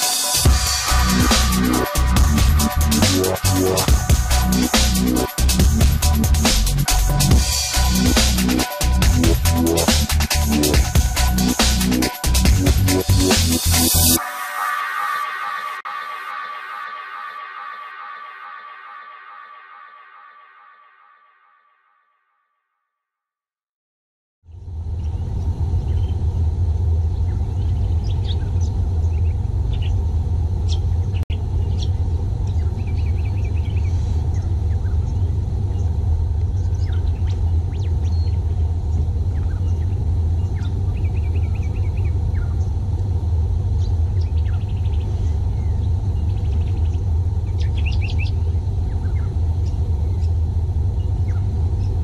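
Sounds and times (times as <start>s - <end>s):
steady low rumble: 0.0s - 14.2s, 24.5s - 52.0s
birds chirping and trilling: 27.2s - 30.0s, 30.7s - 42.8s, 43.7s - 52.0s.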